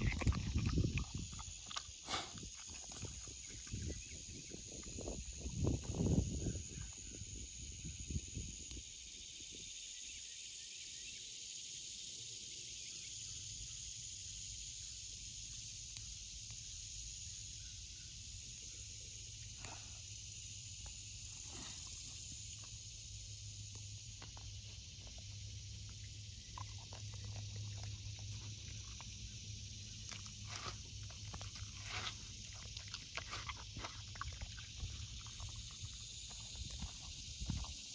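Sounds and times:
dog licking and chewing: 0:00.0 - 0:04.0, 0:24.2 - 0:37.9
high buzz of insects: 0:00.0 - 0:37.9.

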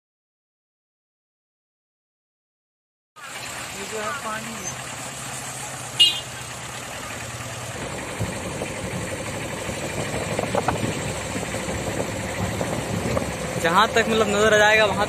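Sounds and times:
vehicle engine humming: 0:03.2 - 0:15.0.

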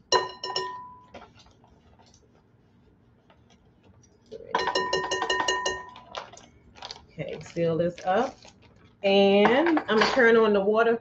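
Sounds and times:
metal spoon clinking glass bowl: 0:00.0 - 0:01.2, 0:04.5 - 0:06.3.

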